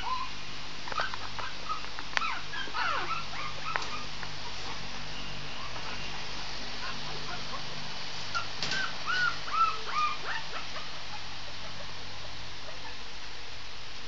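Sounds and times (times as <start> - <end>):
puppy whimpering: 0.0 - 4.8, 6.8 - 7.7, 8.4 - 11.8.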